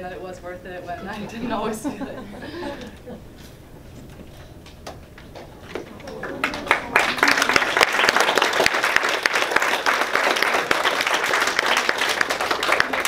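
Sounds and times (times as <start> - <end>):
audience applauding: 5.8 - 13.0.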